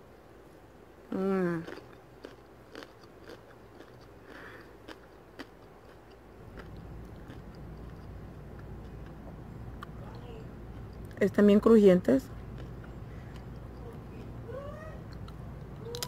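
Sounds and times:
low steady hum: 0.0s - 16.0s
crunchy tostada being chewed: 1.4s - 10.0s, 12.2s - 14.4s, 15.1s - 16.0s.

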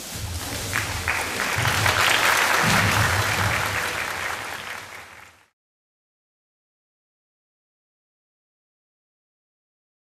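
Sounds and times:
audience applauding: 0.4s - 5.6s.

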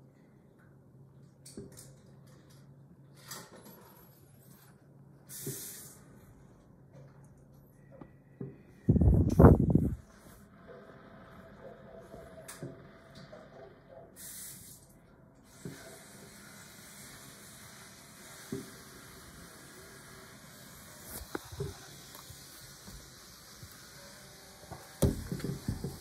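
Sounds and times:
steady hiss: 5.3s - 6.2s, 14.2s - 26.0s.

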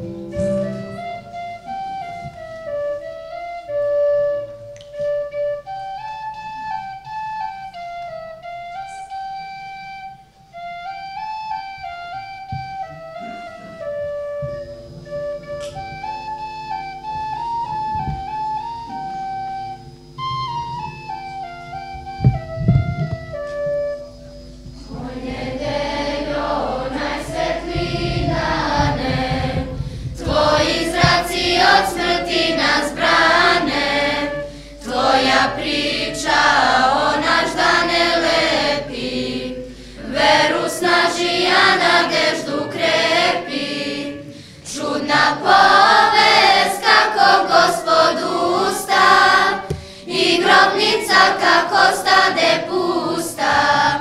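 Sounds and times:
church choir singing: 23.5s - 54.0s.

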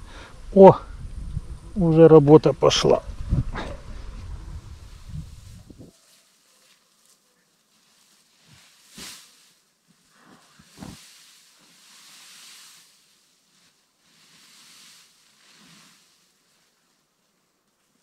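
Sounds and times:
wind gusting: 0.0s - 5.9s.

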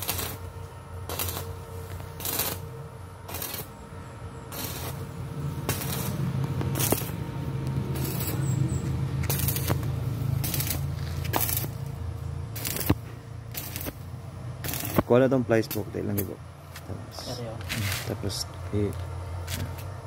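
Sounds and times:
welder low hum: 0.0s - 20.0s
welding arc crackling: 0.0s - 20.0s.

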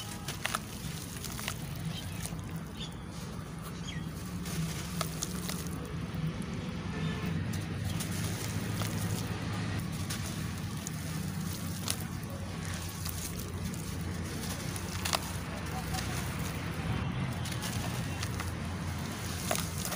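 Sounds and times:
hands squeezing lumps in water: 0.0s - 2.9s
small crackles: 0.0s - 19.9s.

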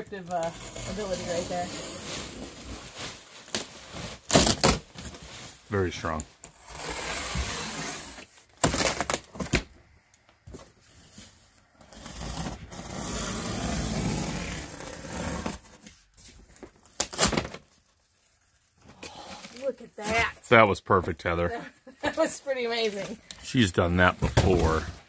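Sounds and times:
cardboard ripping: 0.5s - 5.2s, 6.7s - 9.6s, 11.9s - 15.8s, 16.9s - 17.8s.

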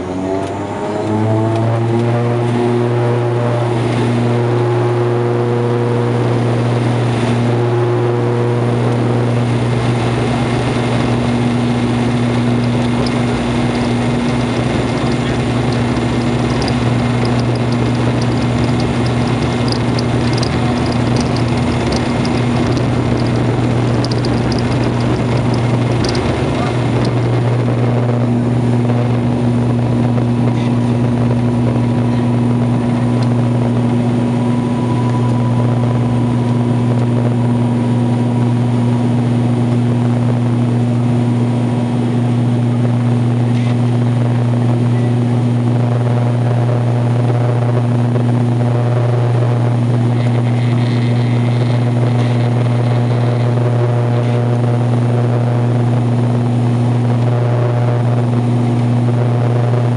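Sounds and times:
turboprop engines droning: 0.0s - 59.9s
higher tones: 33.7s - 38.4s.

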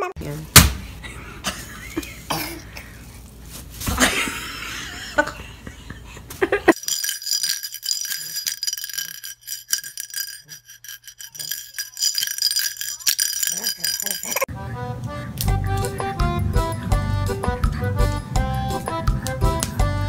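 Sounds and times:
plastic bag rustling on floor: 3.1s - 4.4s.

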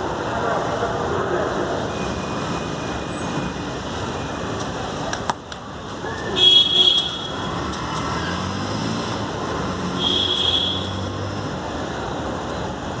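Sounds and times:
street traffic: 0.0s - 13.0s
vehicle engine hum: 0.0s - 13.0s.

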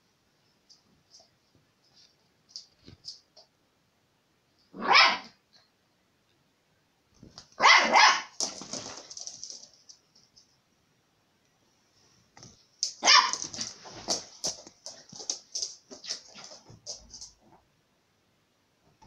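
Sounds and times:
puppy barking: 4.8s - 5.4s, 7.6s - 8.4s, 13.0s - 13.8s.

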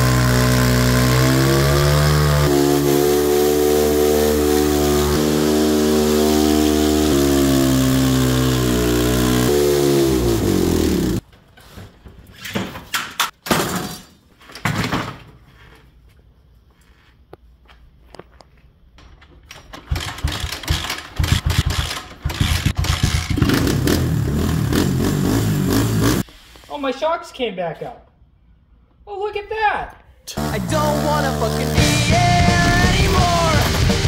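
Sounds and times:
dirt bike engine revving high: 0.0s - 11.2s, 22.4s - 26.2s, 30.3s - 34.0s
knocks and clatters: 19.0s - 23.7s.

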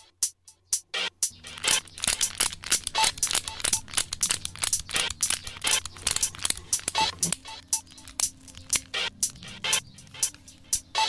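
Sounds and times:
plastic packaging crinkling: 1.3s - 9.4s.

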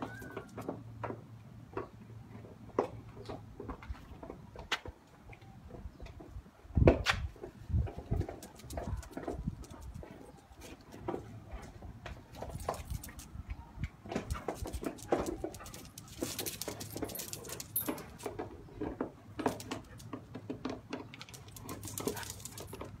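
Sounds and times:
dog paws clicking on concrete: 0.0s - 1.2s, 7.1s - 23.0s.

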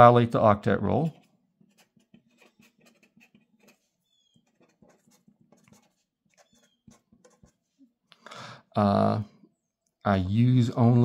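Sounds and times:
pen writing on paper: 1.0s - 7.8s
faint high squeaks: 3.6s - 5.0s, 6.4s - 7.1s.

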